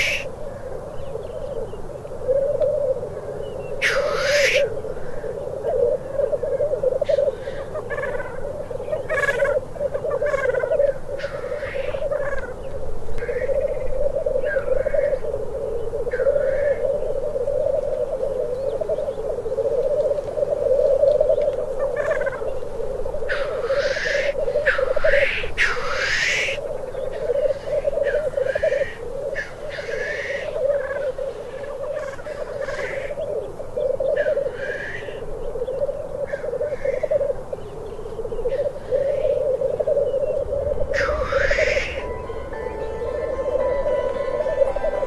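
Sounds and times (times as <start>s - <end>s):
grouse hissing sneeze call: 0.0s - 0.3s, 3.8s - 4.7s, 23.3s - 26.6s
grouse bubbling cooing song: 0.0s - 45.0s.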